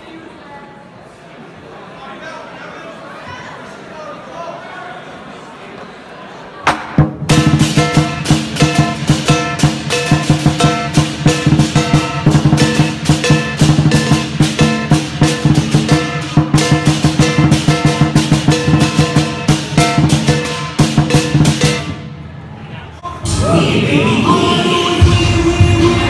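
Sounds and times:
drum beaten in fast rhythm: 6.7s - 22.1s, 23.2s - 26.0s.

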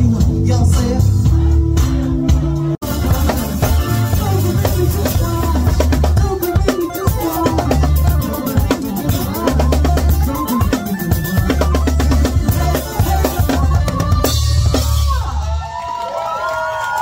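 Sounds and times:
live band music: 0.0s - 15.8s.

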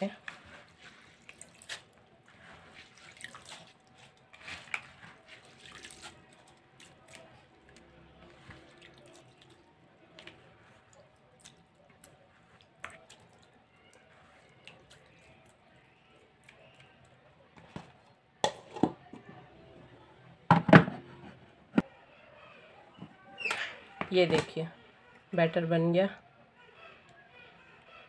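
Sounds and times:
hand scooping through soaked rice: 0.2s - 6.4s
water dripping: 1.0s - 2.0s, 2.8s - 17.2s.

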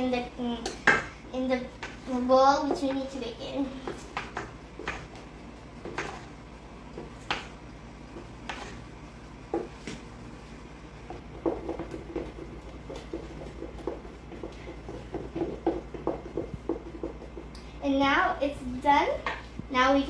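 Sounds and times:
wooden spoon knocking a bowl: 11.2s - 17.5s.

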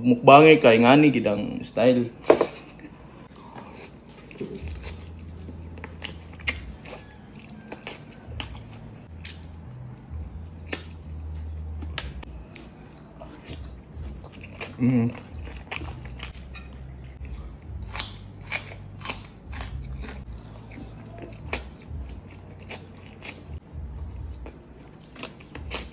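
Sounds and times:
chewing meat: 3.3s - 25.9s
wet mouth clicks and smacks: 10.6s - 11.0s.

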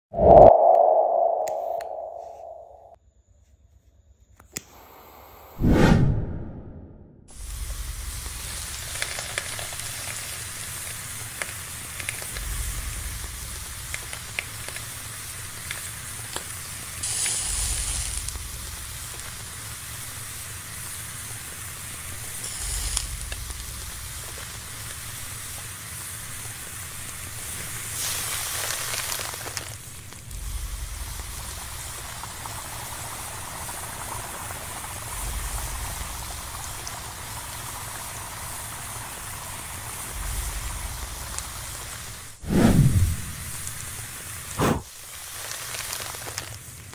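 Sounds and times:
low rumble: 0.1s - 2.9s, 5.6s - 8.1s, 42.4s - 43.8s
burning rubber sizzling and crackling: 7.3s - 46.9s.

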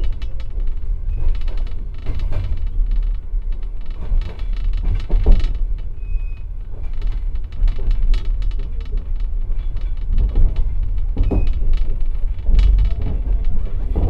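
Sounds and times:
wheels clattering over rail joints: 0.0s - 6.0s, 6.6s - 14.0s
train car rumbling: 0.0s - 14.0s.

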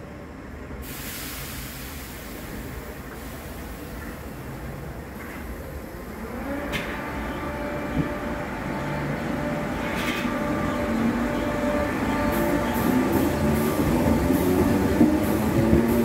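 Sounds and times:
electric train motor whine: 5.8s - 16.0s.

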